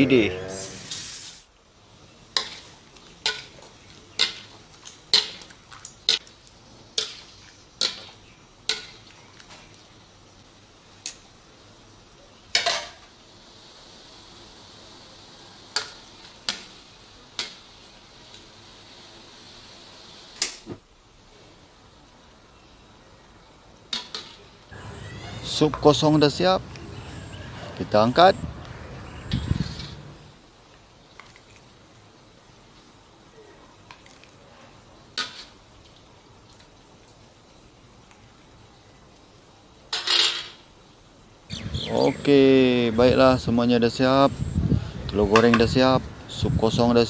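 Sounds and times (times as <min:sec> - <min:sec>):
faint steady hiss: 0:00.0 - 0:47.0
gas burner hiss: 0:00.5 - 0:01.5, 0:12.8 - 0:20.7
wok clanking: 0:02.4 - 0:04.5
ladle scraping a wok: 0:29.4 - 0:30.1.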